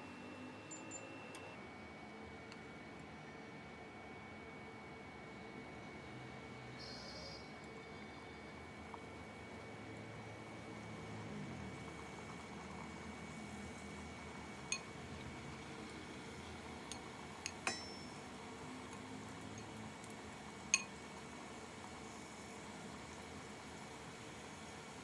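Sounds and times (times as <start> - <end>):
faint steady hum: 0.0 - 25.0
chopsticks clinking on ceramic bowl: 17.5 - 18.0.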